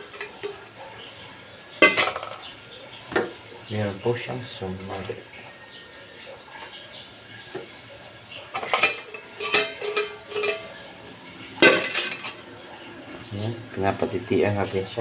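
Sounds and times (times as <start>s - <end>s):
metal pot clanking: 0.0s - 3.5s, 7.4s - 13.3s.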